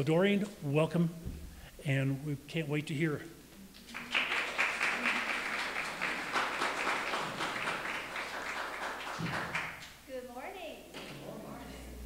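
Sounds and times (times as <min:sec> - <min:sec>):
audience applauding: 0:03.9 - 0:09.9.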